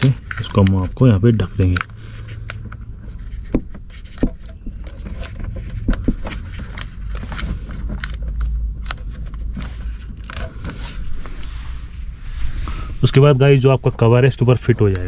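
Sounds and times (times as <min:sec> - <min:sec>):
steady low rumble: 0:00.0 - 0:15.0
wires and plastic rustling: 0:00.0 - 0:15.0.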